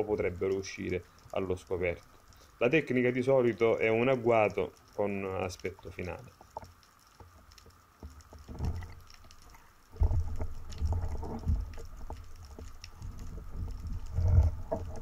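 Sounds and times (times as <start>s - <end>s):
muffled underwater rumbling: 8.2s - 15.0s.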